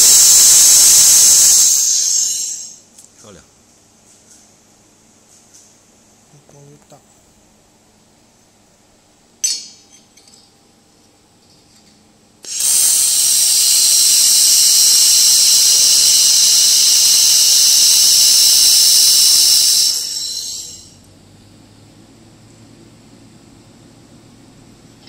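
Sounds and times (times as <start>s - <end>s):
laser welding hiss: 0.0s - 2.8s, 12.4s - 21.0s.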